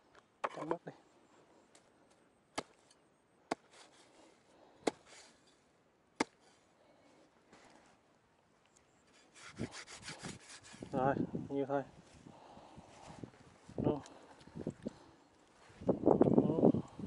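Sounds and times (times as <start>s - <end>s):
rustle: 0.0s - 5.8s, 6.4s - 16.4s
knife chopping roots: 3.5s - 4.0s, 4.8s - 5.3s, 6.2s - 6.5s.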